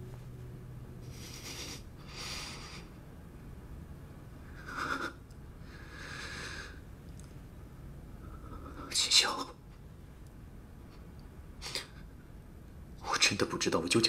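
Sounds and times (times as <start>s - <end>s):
person breathing heavily: 1.1s - 3.0s, 4.6s - 6.8s.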